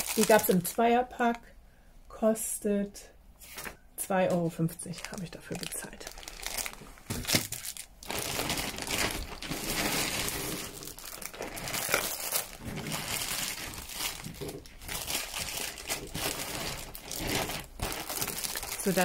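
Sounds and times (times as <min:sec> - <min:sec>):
plastic packaging crinkling: 0:00.0 - 0:00.8, 0:04.7 - 0:19.0.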